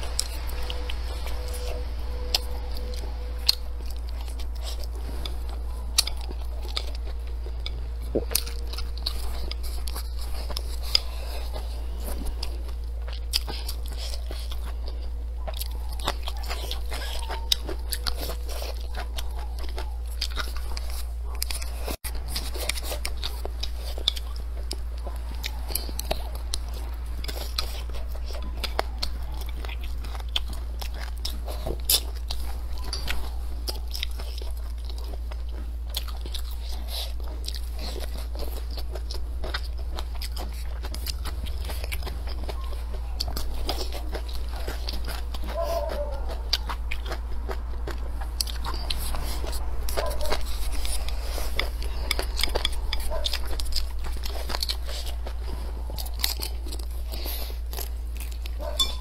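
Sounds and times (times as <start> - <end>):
chewing crisp vegetables: 0.0 - 59.0
steady low hum: 0.0 - 59.0.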